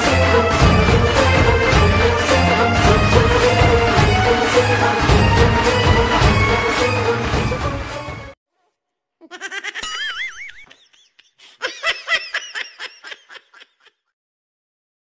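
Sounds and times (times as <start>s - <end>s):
high-pitched laughter: 9.2s - 14.1s.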